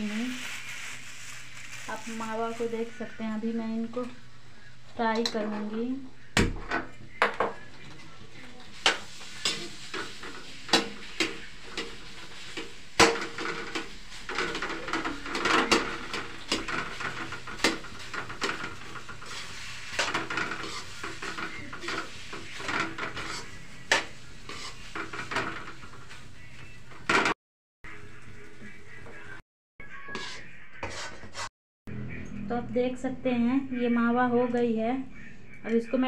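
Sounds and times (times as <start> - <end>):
metal spatula scraping a pan: 7.7 - 27.4, 29.9 - 31.5.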